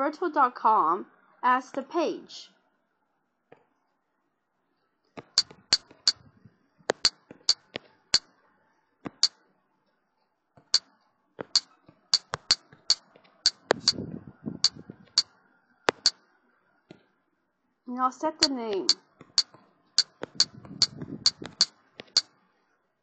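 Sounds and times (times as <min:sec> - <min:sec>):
on-screen keyboard clicks: 0:06.9 - 0:08.3, 0:09.1 - 0:09.3, 0:10.7 - 0:14.0, 0:14.6 - 0:15.3, 0:15.9 - 0:16.2, 0:18.4 - 0:22.3.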